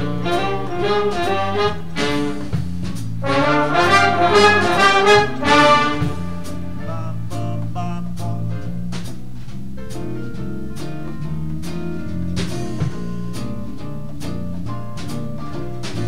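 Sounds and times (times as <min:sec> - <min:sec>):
jazz horns playing melody: 0:00.0 - 0:07.2
steady bass line: 0:00.0 - 0:16.0.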